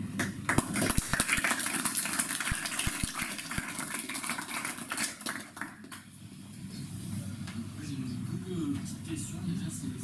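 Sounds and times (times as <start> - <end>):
audience applauding: 0.5 - 6.0.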